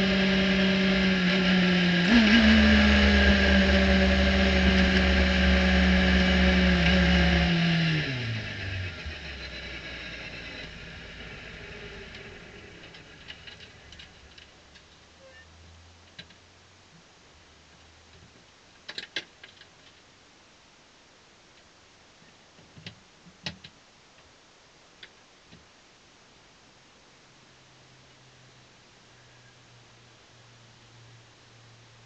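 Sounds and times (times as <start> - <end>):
faint low engine hum: 0.0 - 18.8, 26.6 - 32.0.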